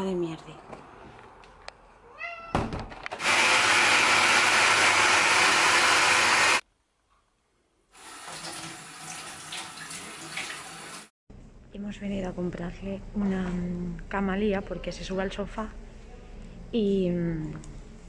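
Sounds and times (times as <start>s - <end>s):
blender whirring: 3.2s - 6.6s.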